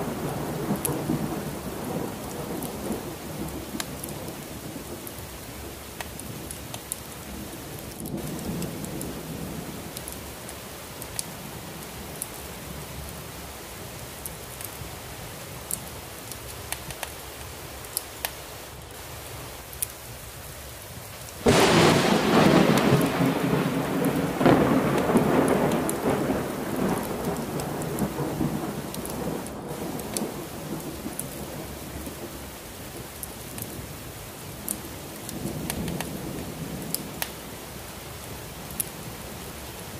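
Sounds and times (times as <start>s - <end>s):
heavy rain: 0.0s - 39.9s
thunder rumbling and crashing: 21.4s - 32.4s.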